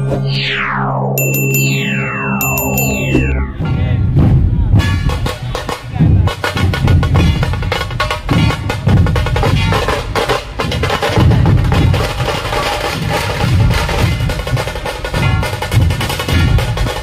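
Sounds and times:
heavy barrel drum beats: 0:03.5 - 0:17.0.

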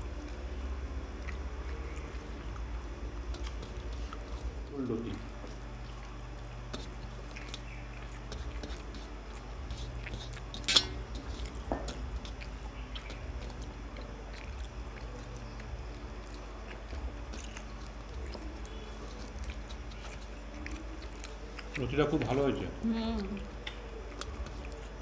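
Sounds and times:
chewing: 0:00.0 - 0:25.0
steady low hum: 0:00.0 - 0:25.0
steel tableware clink: 0:10.6 - 0:11.0.

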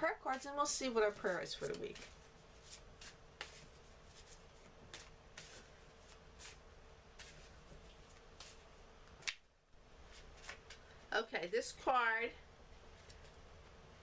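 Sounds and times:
faint steady hum: 0:00.0 - 0:14.0
cards being shuffled: 0:01.2 - 0:06.6, 0:07.2 - 0:08.6, 0:10.1 - 0:10.9.

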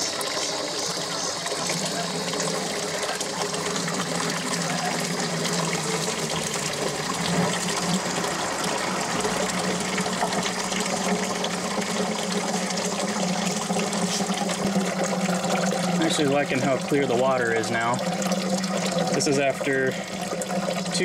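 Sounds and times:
water splashing into a bucket: 0:00.0 - 0:21.0.

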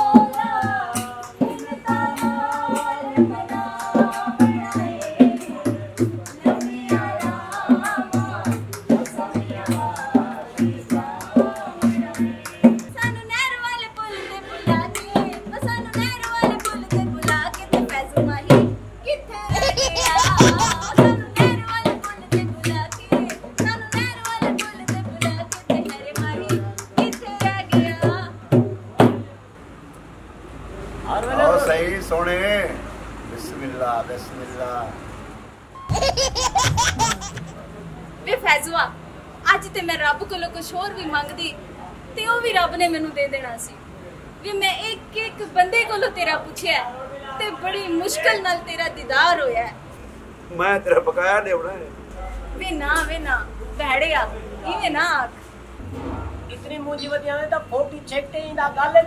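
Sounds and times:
dholak drum beat: 0:00.0 - 0:13.5, 0:14.7 - 0:18.8, 0:19.5 - 0:29.2, 0:35.9 - 0:37.5
person singing: 0:19.5 - 0:23.4
person singing folk song: 0:19.5 - 0:28.3
hand drum beating: 0:19.5 - 0:29.2.

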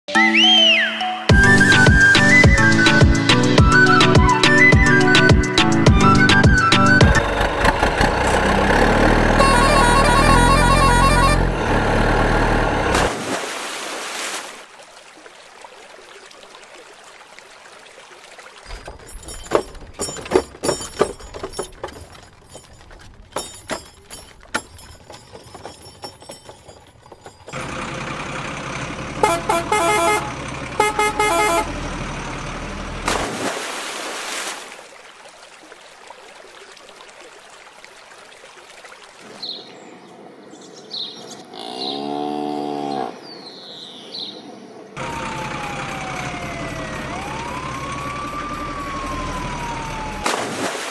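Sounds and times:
vehicle horn toots: 0:09.3 - 0:11.8, 0:29.2 - 0:31.8
irregular clicks and knocks: 0:18.7 - 0:27.6.

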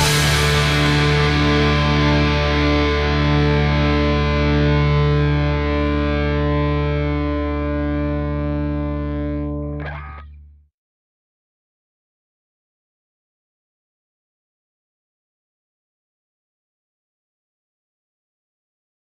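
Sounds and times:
distorted electric guitar chord: 0:00.0 - 0:10.4.

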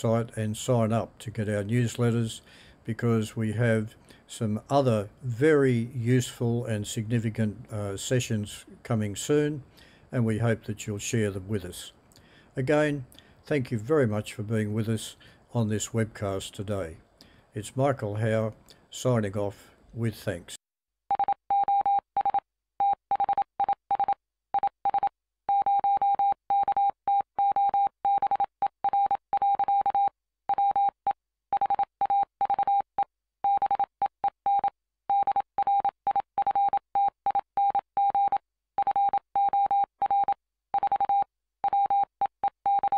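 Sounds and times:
morse code beeps: 0:21.1 - 0:32.9, 0:33.5 - 0:42.9.

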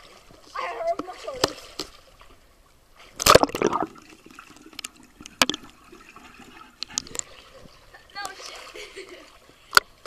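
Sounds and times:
muffled underwater sloshing: 0:00.0 - 0:10.0
camera splashing into water: 0:03.2 - 0:04.0.

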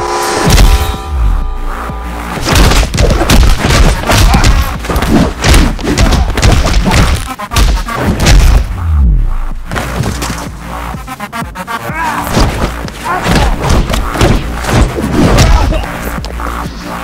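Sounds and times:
music with heavy bass: 0:00.0 - 0:17.0
punch and body hit effects: 0:02.4 - 0:08.8, 0:12.3 - 0:15.9.

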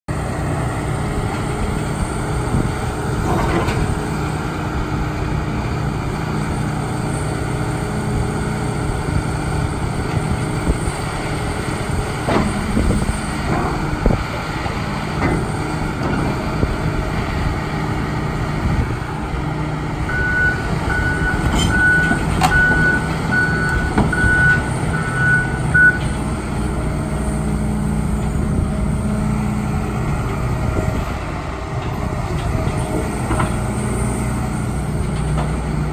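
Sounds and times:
excavator diesel engine running: 0:00.1 - 0:35.9
excavator clunks: 0:02.5 - 0:04.3, 0:12.0 - 0:16.8, 0:20.1 - 0:26.8, 0:30.2 - 0:35.9
alarm beeping: 0:20.1 - 0:26.0.

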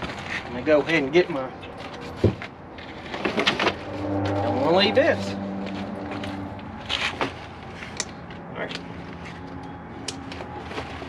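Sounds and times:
steady low hum: 0:02.6 - 0:10.2.

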